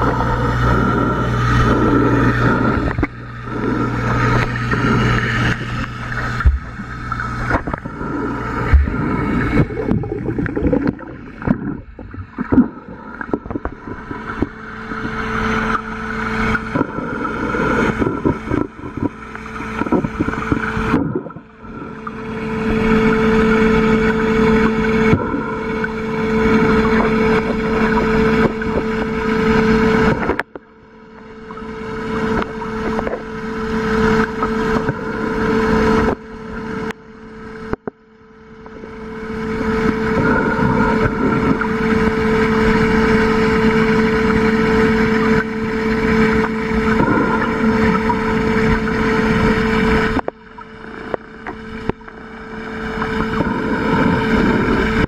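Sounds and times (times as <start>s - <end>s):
rushing water noise: 0.0s - 30.6s, 38.8s - 55.0s
underwater motor hum: 0.0s - 55.0s.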